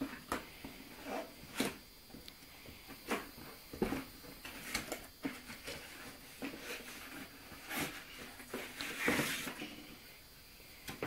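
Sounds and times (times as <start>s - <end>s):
cardboard box scraping and rustling: 4.0s - 9.7s.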